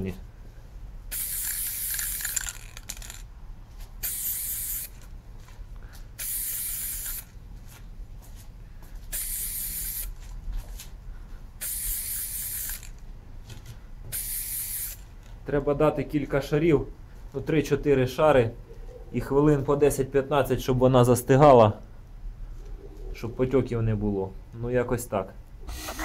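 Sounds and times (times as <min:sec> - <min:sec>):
spray paint can hissing: 0:01.1 - 0:03.2, 0:04.0 - 0:05.0, 0:06.2 - 0:07.4, 0:09.1 - 0:10.2, 0:11.6 - 0:13.0, 0:14.1 - 0:15.1, 0:25.7 - 0:26.0.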